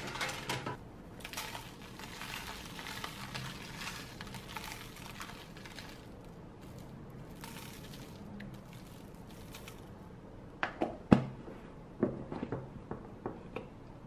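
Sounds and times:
seasoning pattering on paper: 1.2s - 9.9s.

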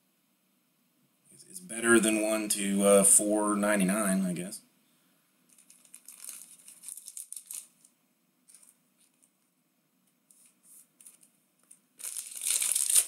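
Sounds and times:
foil wrapper crinkling and tearing: 5.5s - 7.9s, 11.0s - 13.0s.

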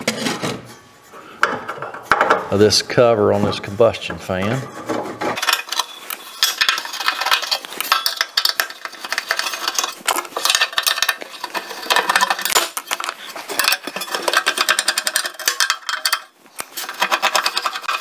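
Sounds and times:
screwdriver metallic scraping and clicking: 4.8s - 18.0s.

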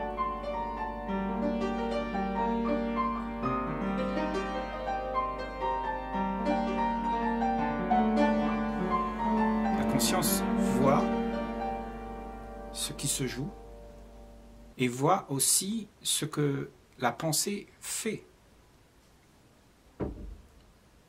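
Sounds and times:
slow piano music: 0.0s - 14.8s.

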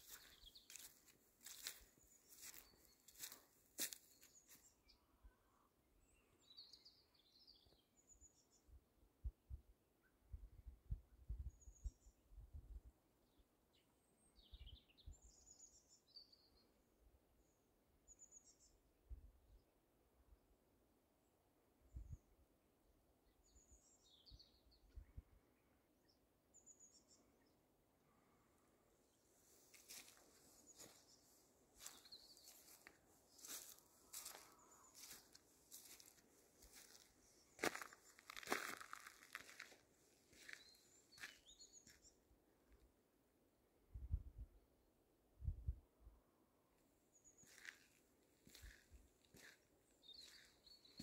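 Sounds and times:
footsteps crunching on dry ground: 0.0s - 4.7s, 29.4s - 42.0s, 47.4s - 51.0s.

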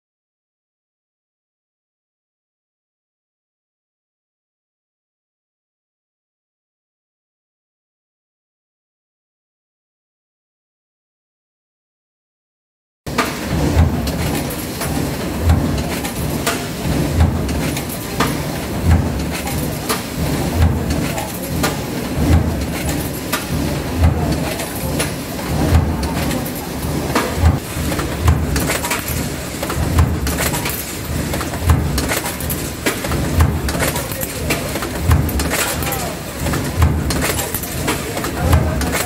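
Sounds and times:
steady machine noise: 13.1s - 39.0s.

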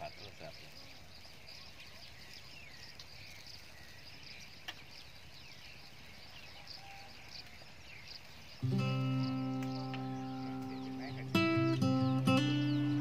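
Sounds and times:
birds chirping: 0.0s - 13.0s
insects calling: 0.0s - 13.0s
acoustic guitar music: 8.6s - 13.0s.

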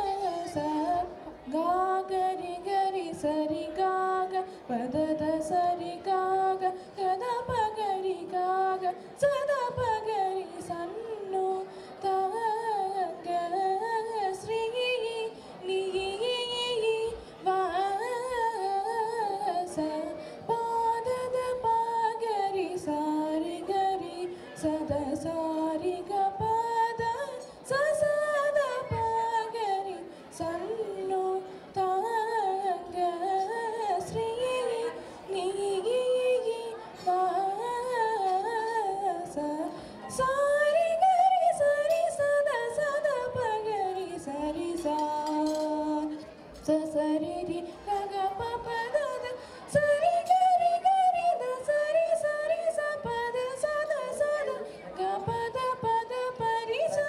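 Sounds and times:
girl singing into microphone: 0.0s - 57.0s.

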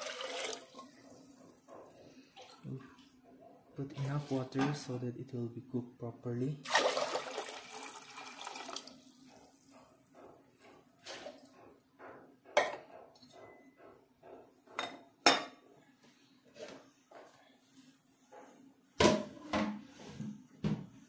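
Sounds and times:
water pouring into metal pot: 0.0s - 0.9s, 6.6s - 9.1s.

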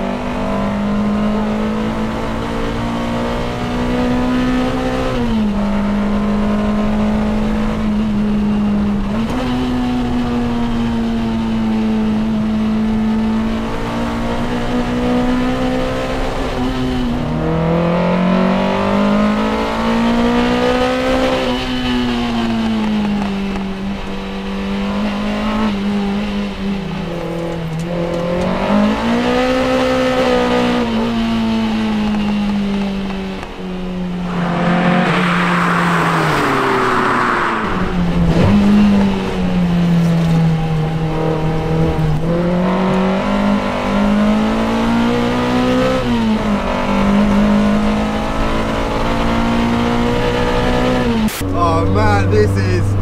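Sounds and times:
car engine revving through gears: 0.0s - 53.0s
rushing noise: 34.1s - 38.6s.

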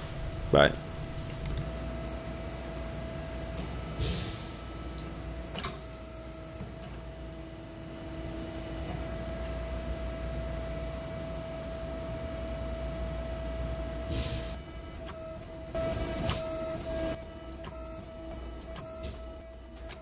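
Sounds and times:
hydraulic press hum: 0.0s - 20.0s
sharp clicks: 1.2s - 1.7s.

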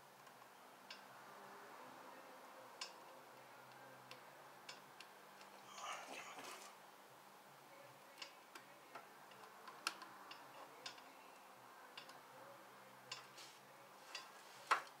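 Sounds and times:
light clicks and taps of tools: 2.8s - 5.6s, 8.2s - 11.1s, 11.9s - 12.2s, 13.1s - 15.0s.

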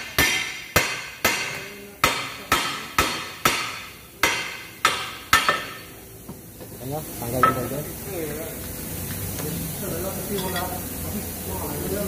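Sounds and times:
hammer striking steel: 0.0s - 5.9s.

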